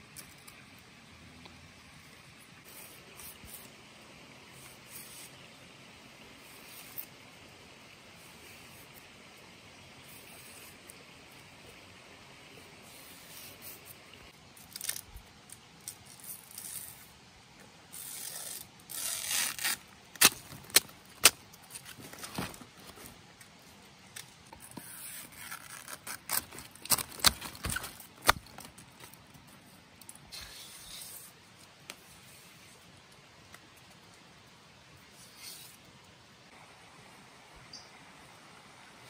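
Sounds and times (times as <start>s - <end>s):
plant fibres tearing: 14.6s - 17.0s, 18.0s - 22.5s, 25.2s - 29.1s.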